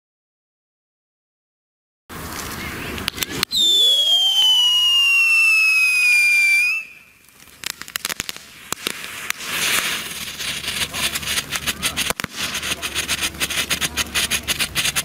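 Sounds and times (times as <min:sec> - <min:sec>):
firework pops and crackles: 0:02.2 - 0:15.0
firework whistle falling: 0:03.4 - 0:10.2.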